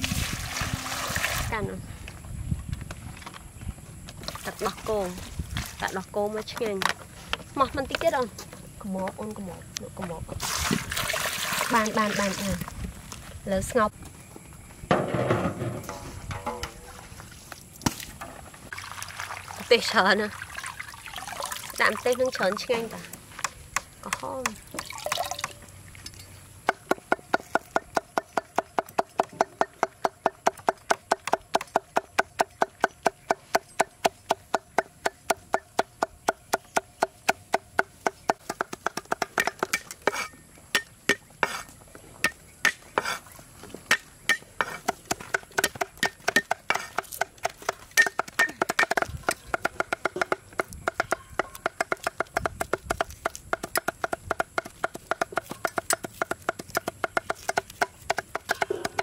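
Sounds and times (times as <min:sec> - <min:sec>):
cleaver chopping on wooden block: 0:26.7 - 0:41.6, 0:43.9 - 0:59.0.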